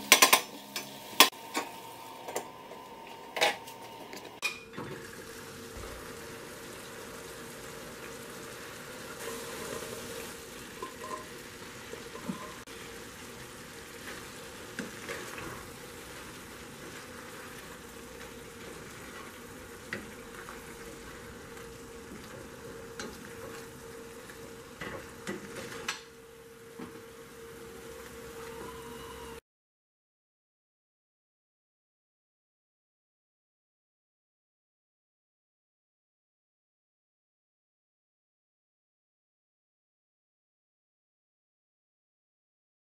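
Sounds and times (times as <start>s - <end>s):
pasta sizzling in a skillet: 0.0s - 29.4s.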